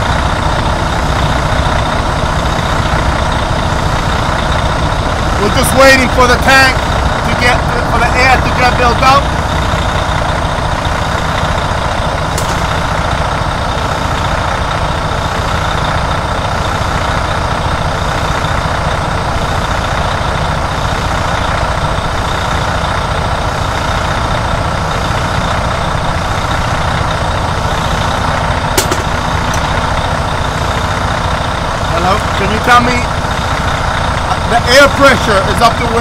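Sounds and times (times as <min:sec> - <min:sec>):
diesel truck engine idling: 0:00.0 - 0:36.0.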